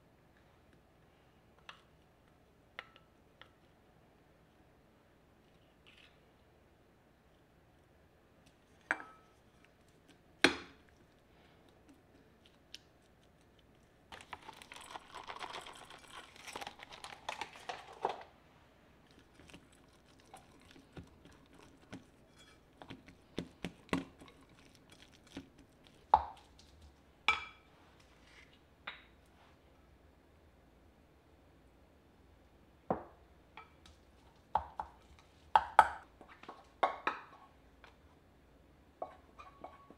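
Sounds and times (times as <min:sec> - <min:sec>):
wooden spoon stirring in bowl: 0:11.7 - 0:18.3, 0:19.0 - 0:27.0
crinkling and rustling: 0:12.0 - 0:27.0.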